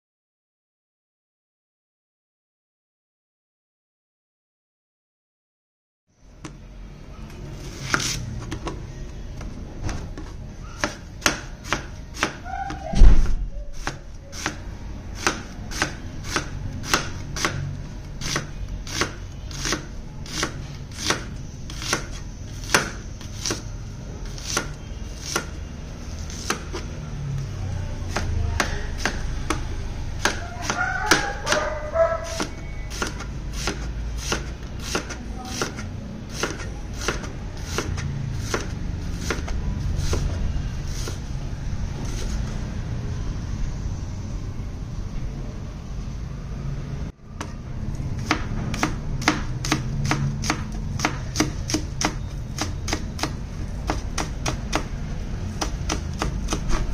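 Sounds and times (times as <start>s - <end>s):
heavy knife thump: 12.9s - 13.5s.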